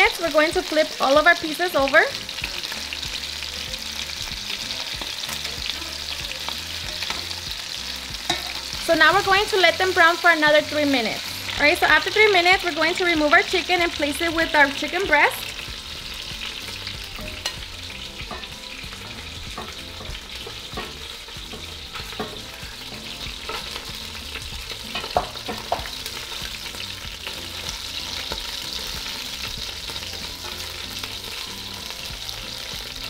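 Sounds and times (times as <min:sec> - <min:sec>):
chicken sizzling in oil: 0:00.0 - 0:33.0
clicks and knocks against pot: 0:24.9 - 0:25.9.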